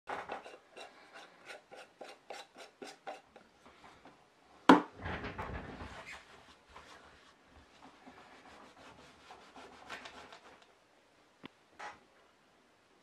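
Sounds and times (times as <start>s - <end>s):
rubbing and handling noise: 5.0s - 10.8s.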